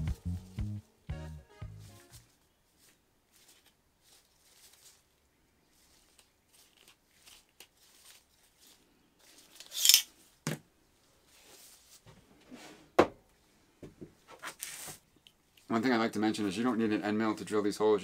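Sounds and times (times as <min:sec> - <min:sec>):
gloved hands rustling: 0:00.0 - 0:10.4
metal clamp scraping: 0:09.6 - 0:10.1.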